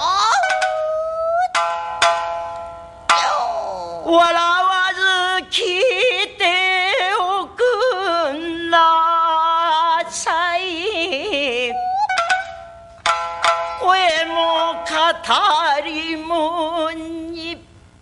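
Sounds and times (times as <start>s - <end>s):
woman singing with vibrato: 0.0s - 1.6s, 3.1s - 12.7s, 13.7s - 17.7s
shamisen: 0.0s - 4.5s, 11.1s - 16.1s.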